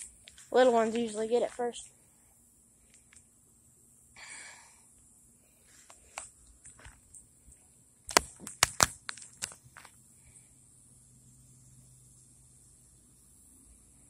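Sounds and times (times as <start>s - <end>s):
breathy exhale: 4.2s - 4.9s
sharp clicks and knocks: 8.1s - 9.9s.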